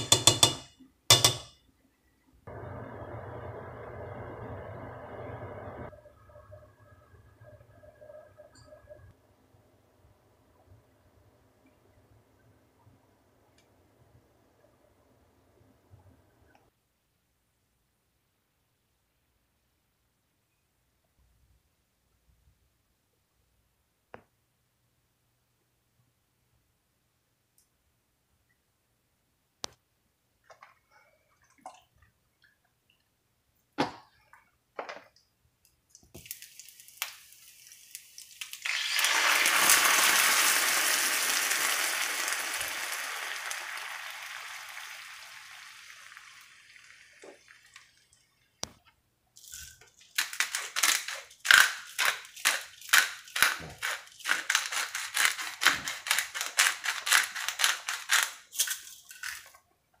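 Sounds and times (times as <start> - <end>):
liquid hissing in hot skillet: 36.2 - 48.0
pepper mill grinding: 49.4 - 59.6.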